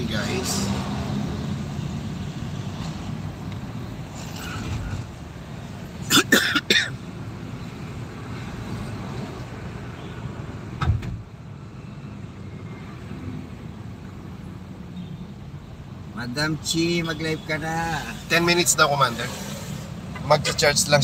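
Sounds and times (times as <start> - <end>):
road and engine rumble: 0.0 - 21.0
loud coughs: 6.0 - 7.0.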